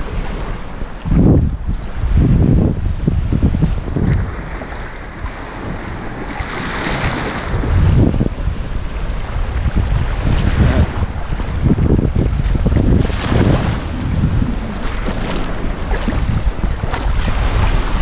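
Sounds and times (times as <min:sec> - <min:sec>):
wind buffeting microphone: 0:00.0 - 0:18.0
small waves washing: 0:03.7 - 0:18.0.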